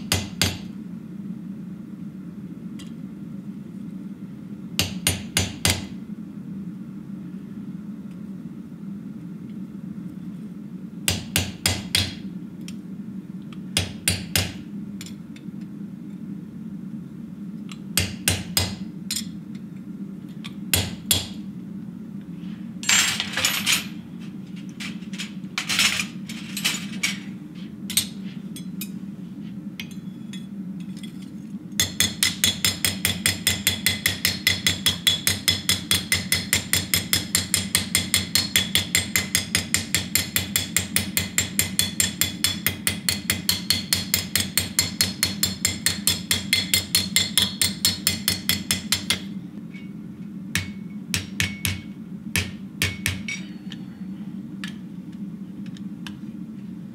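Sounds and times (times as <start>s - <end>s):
rapid hammering on metal: 0.1s - 0.7s, 4.8s - 5.9s, 11.1s - 12.2s, 13.8s - 14.6s, 18.0s - 18.8s, 31.8s - 49.3s, 50.5s - 53.4s
hammer striking chisel: 50.6s - 53.4s.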